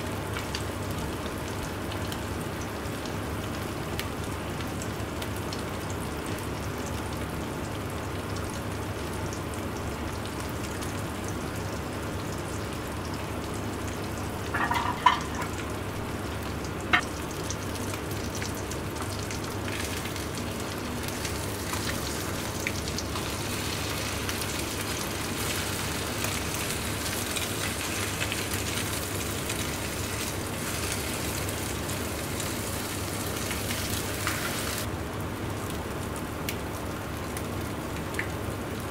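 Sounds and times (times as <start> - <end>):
bread sizzling in a pan: 8.7 - 34.9.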